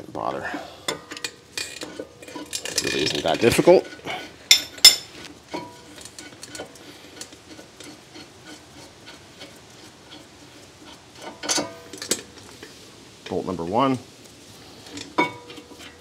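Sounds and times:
metal clatter: 0.9 - 12.5.

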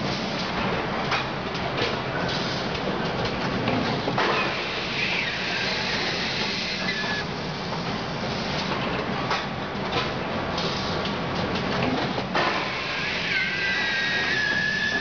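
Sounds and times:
hissing machinery noise: 4.2 - 8.7.

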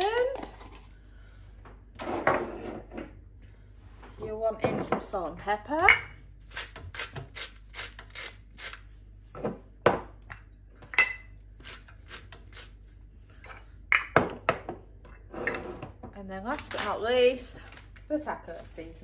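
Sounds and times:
spice grinder cranking: 6.4 - 9.0.

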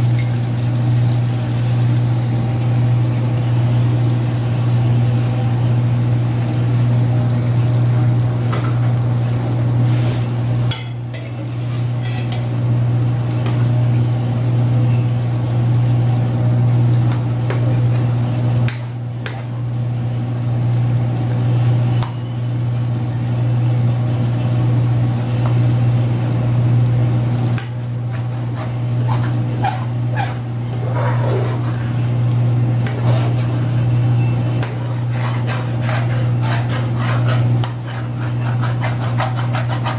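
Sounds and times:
steady low hum: 0.0 - 39.9
metal spoon scraping wok: 10.9 - 12.5, 28.1 - 32.0, 32.8 - 33.8, 34.6 - 39.9.

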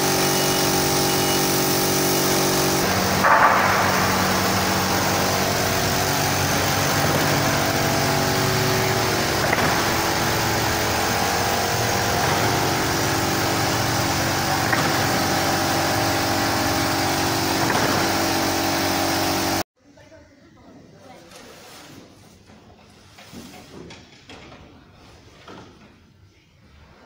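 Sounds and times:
production line machinery hum: 0.0 - 19.6.

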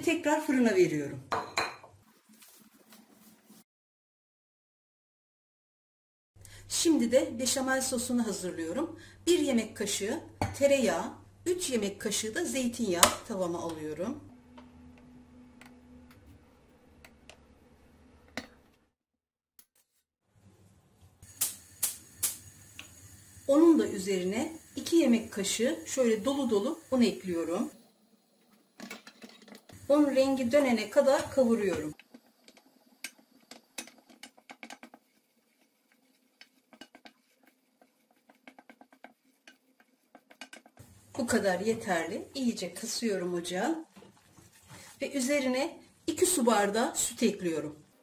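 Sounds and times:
wooden spoon scraping saucepan: 29.0 - 42.7, 43.9 - 45.4.

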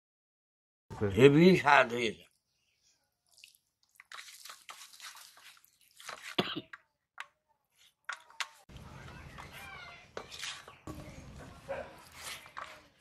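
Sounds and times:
wet squelches of food squeezed: 3.2 - 6.4.

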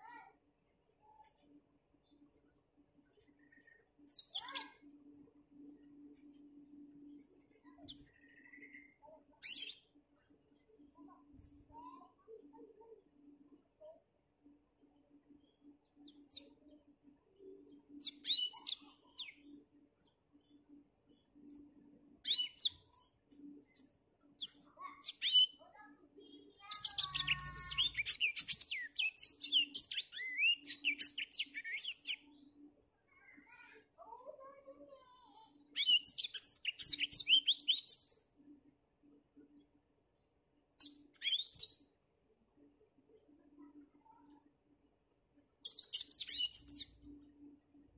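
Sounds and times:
canary singing: 3.3 - 4.9, 7.7 - 9.9, 17.7 - 19.6, 22.2 - 22.9, 23.6 - 25.6, 26.6 - 32.4, 35.8 - 38.3, 40.8 - 41.8, 45.6 - 47.2.

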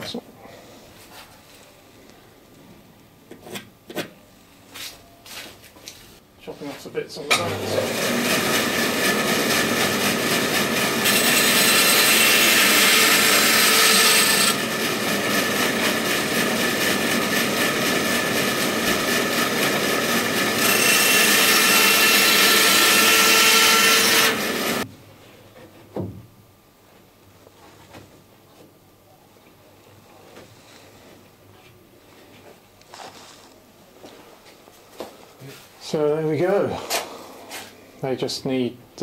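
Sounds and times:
bandsaw cutting wood: 7.3 - 24.8.

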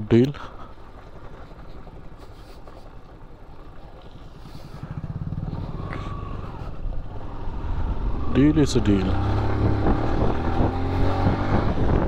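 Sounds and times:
motorcycle engine running: 3.1 - 12.0.

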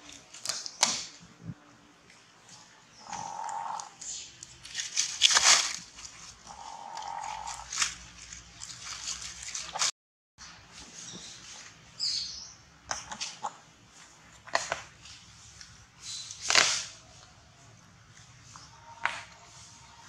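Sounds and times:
rustles and light scuffs: 4.0 - 6.5, 7.4 - 9.9, 10.6 - 12.0.

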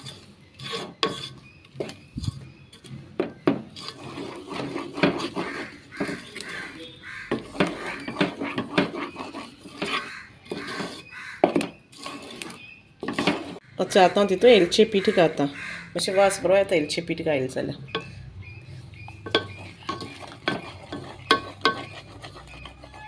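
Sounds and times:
wooden spatula stirring thick mixture: 0.0 - 14.3, 19.0 - 23.0
spatula knocking against pan: 7.2 - 9.0.

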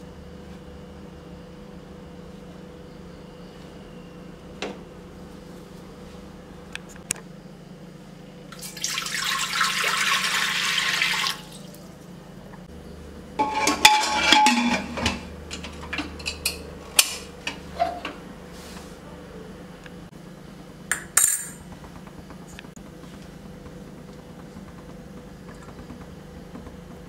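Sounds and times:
water pouring into a pot: 8.6 - 11.8
steel vessels clinking: 13.4 - 16.6
metal lid clanking and scraping: 13.4 - 18.2.

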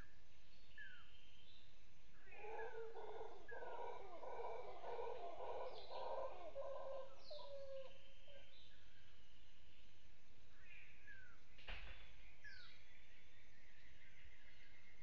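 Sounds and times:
falling bird calls: 2.3 - 7.9
howler monkeys howling: 2.3 - 8.0.

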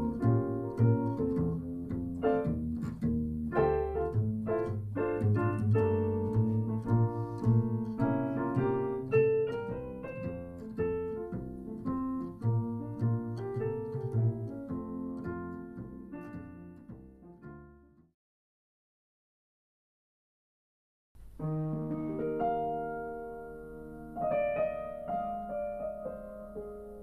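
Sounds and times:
piano chords and melody: 0.0 - 18.1, 21.2 - 27.0
plucked double bass: 0.0 - 18.1.

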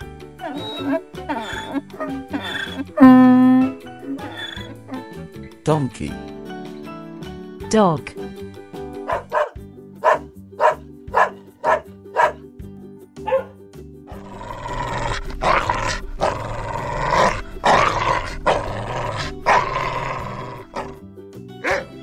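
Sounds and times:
light background music: 0.0 - 22.0
dog barking: 9.0 - 12.4, 13.2 - 13.6, 18.4 - 21.0, 21.6 - 22.0.

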